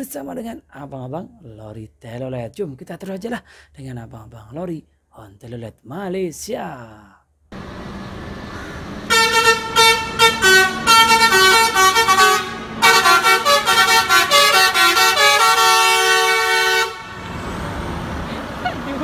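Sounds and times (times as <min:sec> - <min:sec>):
truck engine and road noise: 0:07.5 - 0:19.0
musical air horn playing a tune: 0:09.1 - 0:17.3.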